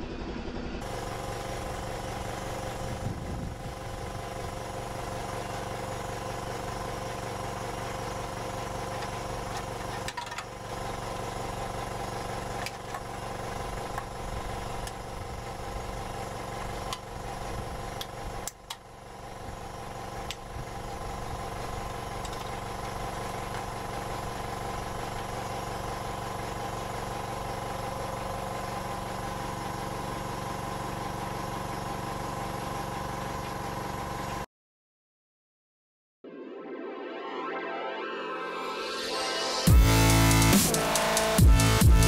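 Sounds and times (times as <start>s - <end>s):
pump motor humming: 0.8s - 34.4s.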